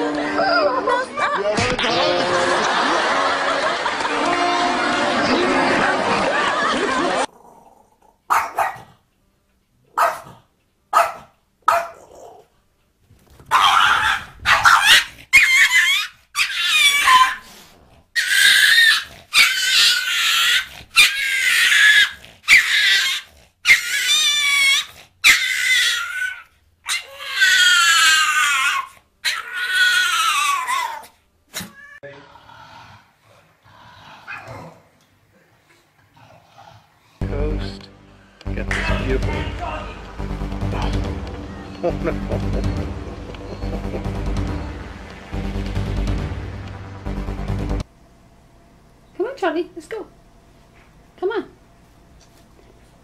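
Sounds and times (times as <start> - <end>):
small dog barking: 8.3 - 8.9, 9.9 - 12.4, 13.5 - 17.4.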